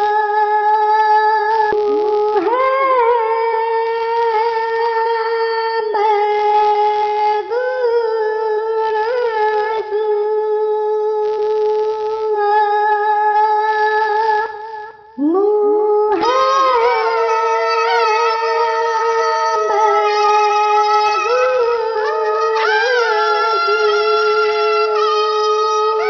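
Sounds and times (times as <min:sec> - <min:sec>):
high-pitched drawn-out vocalizing: 0:15.2 - 0:26.0.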